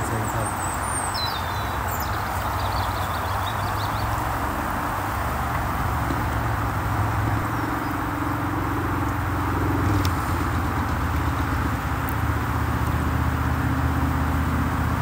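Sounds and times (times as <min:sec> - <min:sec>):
low engine drone: 0:00.0 - 0:15.0
motorway traffic rushing: 0:00.0 - 0:15.0.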